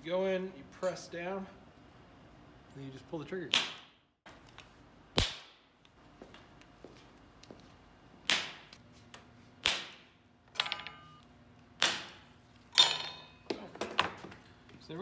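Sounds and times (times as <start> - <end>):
stud welder cracks: 5.1 - 5.8, 8.2 - 8.8, 9.6 - 10.2, 11.8 - 12.9.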